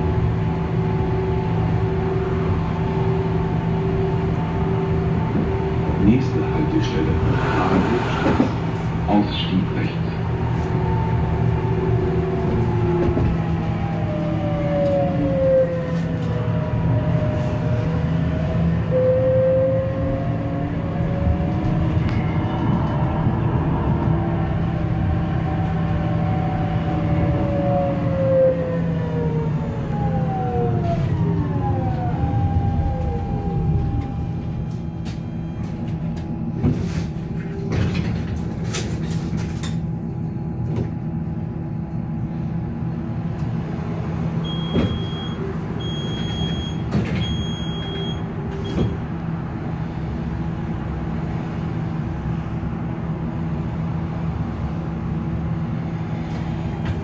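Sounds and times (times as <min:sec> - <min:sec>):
tram electric drive whine: 0:00.0 - 0:57.0
tram humming: 0:00.0 - 0:57.0
high electronic beep: 0:44.5 - 0:48.8.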